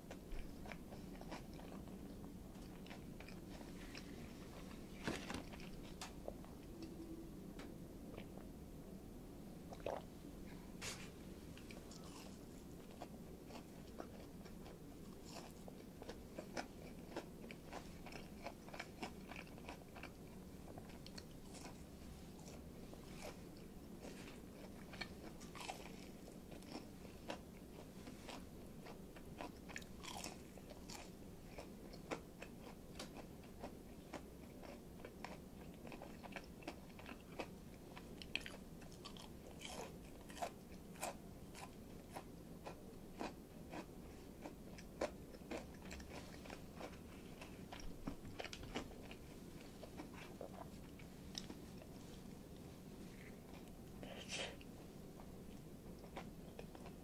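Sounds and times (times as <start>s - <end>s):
person chewing crunchy food: 0.1s - 4.7s, 5.3s - 6.9s, 9.7s - 10.1s, 10.9s - 52.2s, 56.0s - 57.0s.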